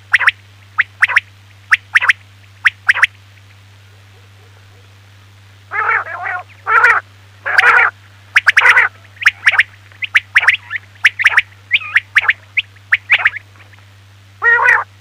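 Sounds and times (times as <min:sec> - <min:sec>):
quail calls: 0:00.0 - 0:03.2, 0:05.7 - 0:13.8, 0:14.4 - 0:14.9
faint low hum: 0:00.0 - 0:15.0.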